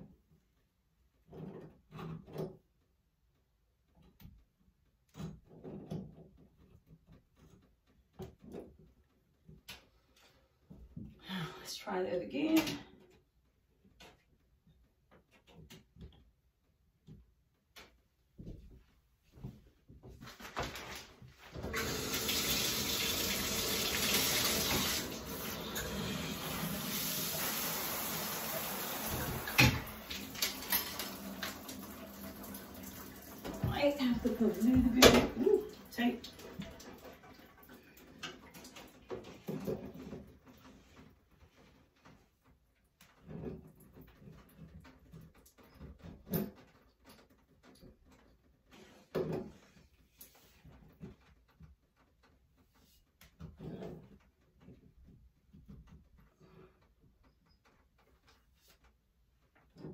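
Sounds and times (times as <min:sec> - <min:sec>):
shower water running into a tub: 0:20.7 - 0:40.0.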